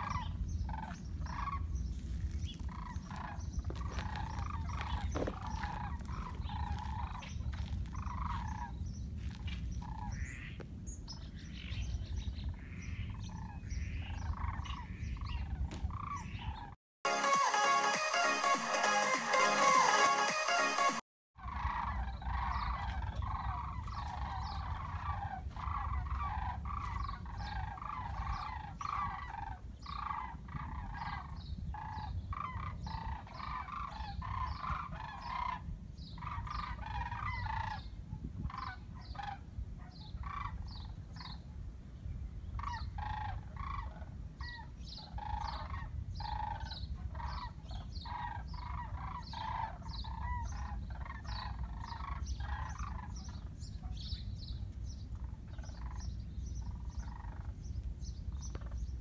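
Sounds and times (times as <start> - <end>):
cranes calling: 0.0 - 10.6, 21.4 - 41.4, 42.6 - 54.2, 55.2 - 57.7.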